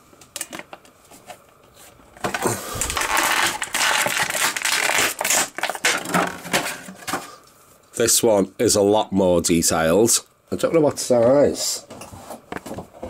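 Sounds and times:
plastic crinkling and rustling: 0.4s - 7.1s
plastic packaging clicks: 2.4s - 6.4s.

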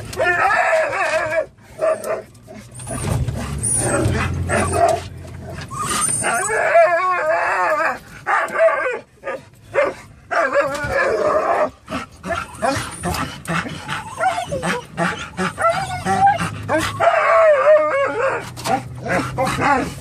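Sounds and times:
dogs whining and howling: 0.0s - 20.0s
dogs yipping: 0.0s - 20.0s.

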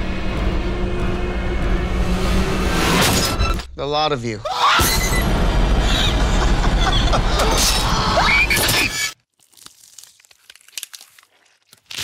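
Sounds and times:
dense horror sound design: 0.0s - 3.6s, 4.8s - 8.5s
wet crunching and tearing: 9.2s - 12.0s.

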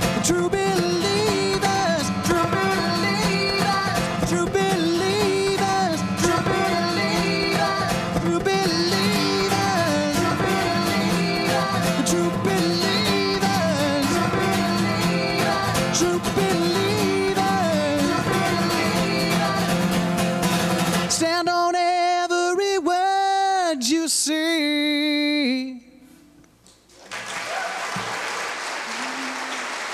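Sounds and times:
man singing: 0.0s - 20.2s, 20.9s - 26.1s
strummed acoustic guitar: 0.0s - 22.2s
audience applause: 26.9s - 29.9s.

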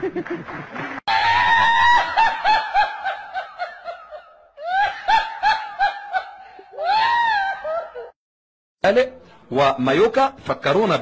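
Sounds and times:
high-pitched laughter: 1.1s - 8.2s.

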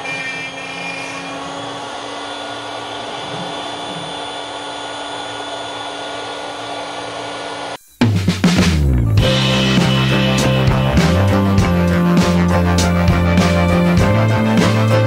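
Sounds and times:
router spindle whine cutting wood: 0.0s - 7.8s.

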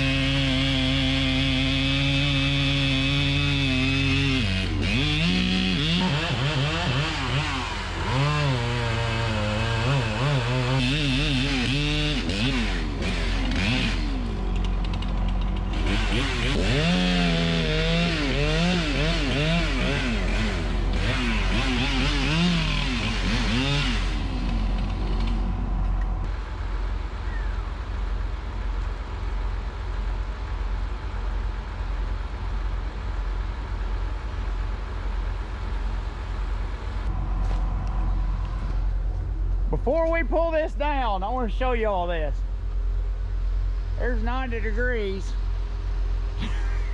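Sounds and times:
chainsaw cutting tree: 0.0s - 26.4s
low engine rumble: 10.7s - 46.9s.

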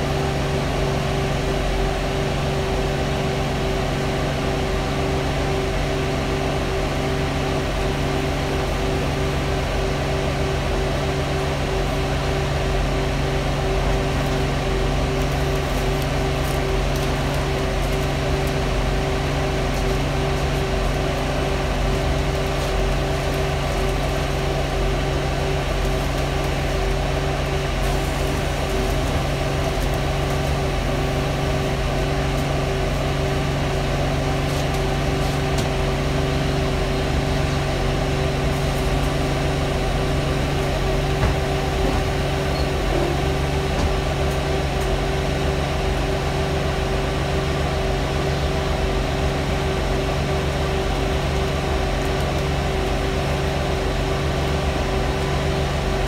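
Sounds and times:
bus engine running: 0.0s - 56.0s
ventilation fan whirring: 0.0s - 56.0s.

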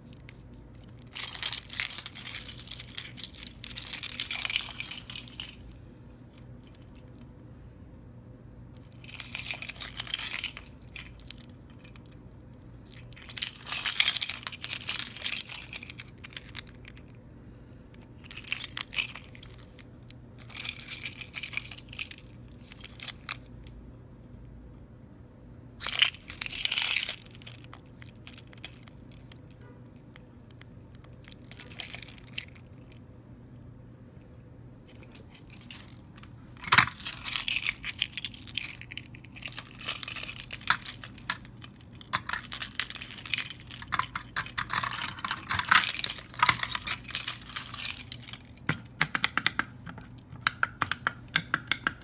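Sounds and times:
keys jangling: 0.0s - 5.7s, 8.8s - 12.2s, 12.9s - 17.1s, 18.0s - 19.8s, 20.4s - 23.5s, 25.8s - 29.6s, 30.9s - 33.0s, 34.9s - 52.0s
faint steady hum: 0.0s - 52.0s.

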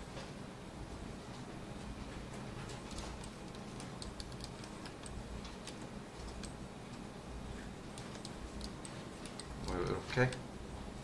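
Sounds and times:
low steady hum: 0.0s - 11.0s
computer mouse clicking: 2.7s - 7.0s, 7.9s - 10.4s.

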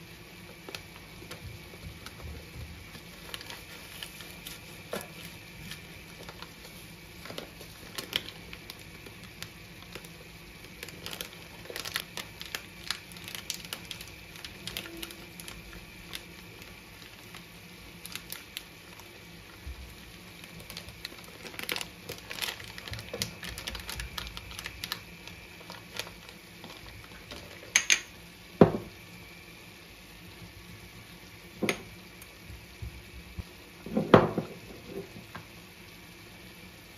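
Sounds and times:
paper packets crinkling: 0.6s - 27.7s.

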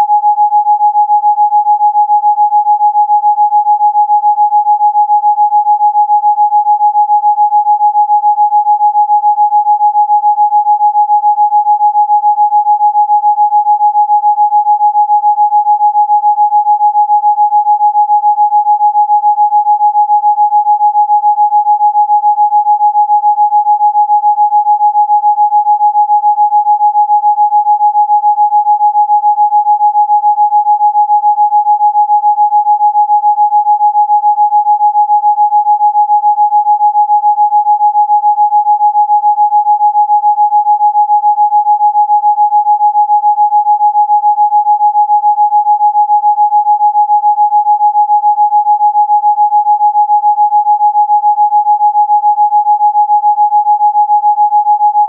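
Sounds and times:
steady sine tone: 0.0s - 24.6s.

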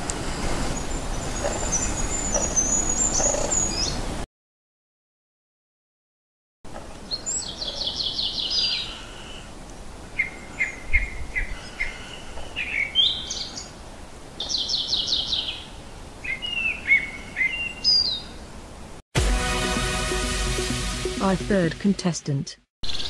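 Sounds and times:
warbler singing: 0.1s - 4.1s, 7.0s - 9.4s, 10.1s - 13.7s, 14.4s - 18.4s.

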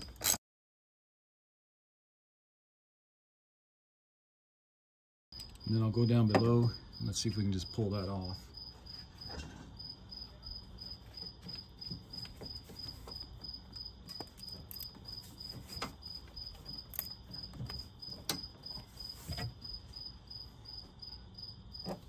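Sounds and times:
cricket chirping: 5.4s - 22.0s.

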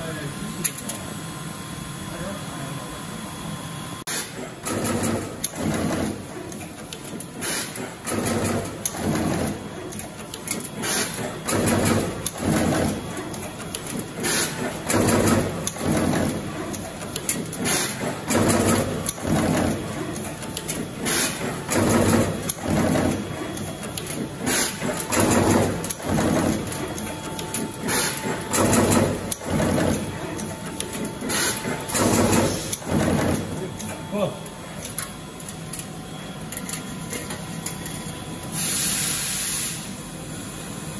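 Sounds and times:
mechanical clacks: 4.1s - 38.2s
short hisses of air: 38.6s - 39.9s.

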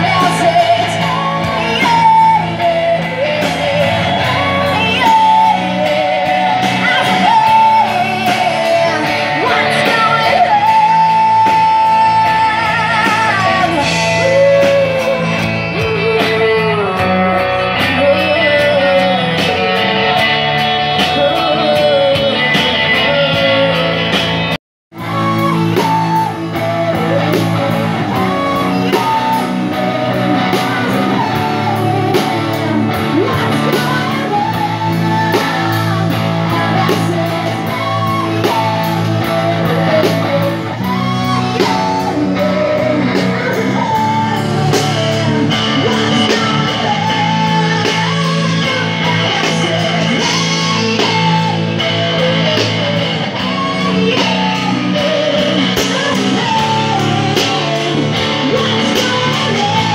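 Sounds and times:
drum kit: 0.0s - 59.9s
electric guitars: 0.0s - 59.9s
person singing: 0.0s - 59.9s.

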